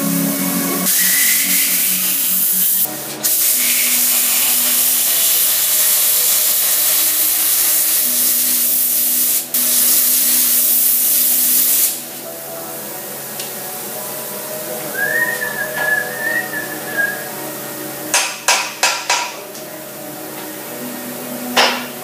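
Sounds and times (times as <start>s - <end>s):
plasma cutter arc hissing: 0.6s - 12.3s.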